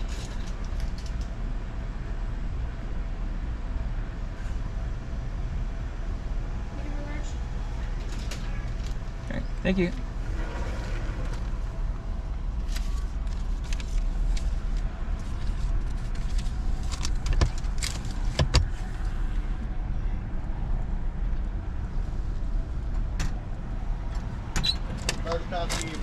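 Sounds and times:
handling clicks and rustles: 0:00.0 - 0:01.4, 0:12.6 - 0:19.1, 0:24.1 - 0:26.0
car engine idling: 0:00.0 - 0:26.0.

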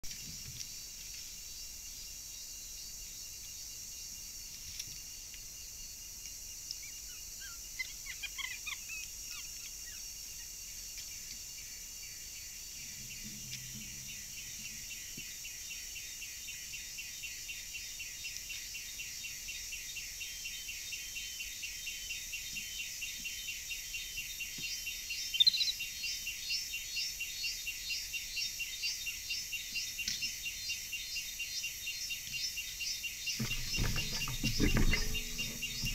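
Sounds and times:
insects pulsing drone: 0:09.2 - 0:22.3.

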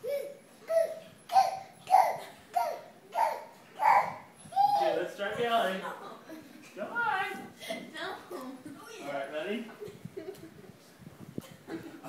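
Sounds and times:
child laughing: 0:00.0 - 0:05.0.

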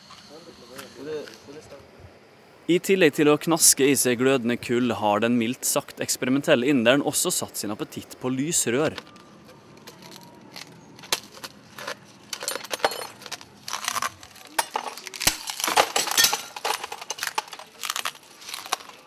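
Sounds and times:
glass crunching between teeth: 0:09.4 - 0:19.0.

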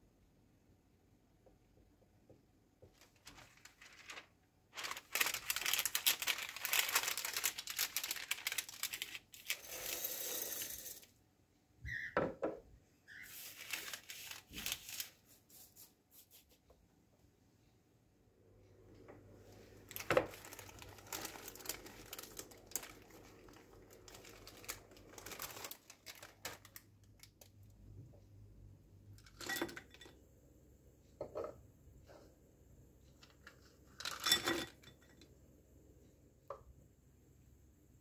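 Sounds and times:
baking paper crinkling: 0:02.8 - 0:10.0, 0:13.1 - 0:16.5, 0:19.8 - 0:27.7
dried beans rattling: 0:03.0 - 0:11.1, 0:19.9 - 0:26.8.

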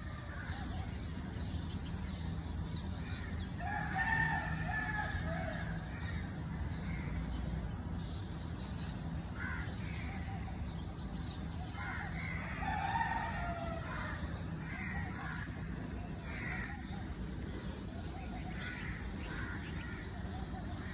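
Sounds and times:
steady low hum: 0:00.0 - 0:20.9
crows cawing: 0:09.3 - 0:10.6, 0:11.6 - 0:20.9.

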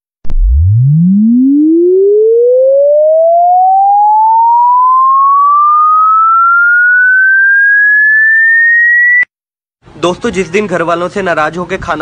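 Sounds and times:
rising sine tone sweep: 0:00.2 - 0:09.3.

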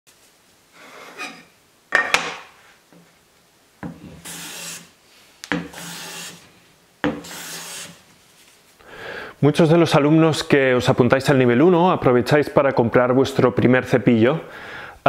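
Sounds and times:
hand plane scraping wood: 0:04.2 - 0:04.9, 0:05.7 - 0:06.4, 0:07.1 - 0:08.0.

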